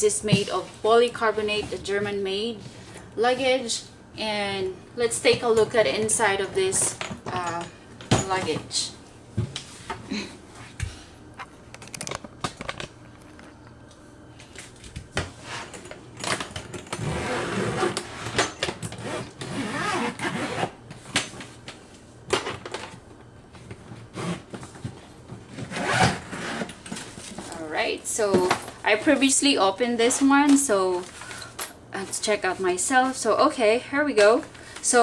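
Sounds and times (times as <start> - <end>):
zipper being pulled open: 17.0 - 18.4, 19.0 - 20.7, 25.7 - 26.7.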